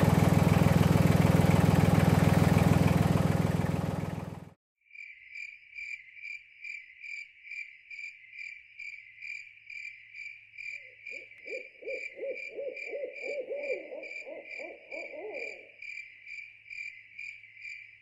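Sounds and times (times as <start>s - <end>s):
insects trilling: 5.0s - 18.0s
owl hooting: 11.1s - 15.8s.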